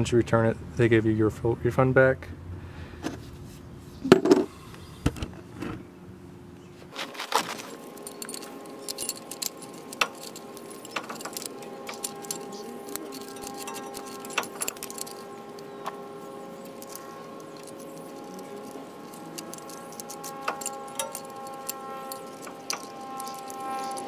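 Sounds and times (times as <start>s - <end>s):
faint steady hum: 0.0s - 24.0s
metallic clinks and rattles: 7.3s - 24.0s.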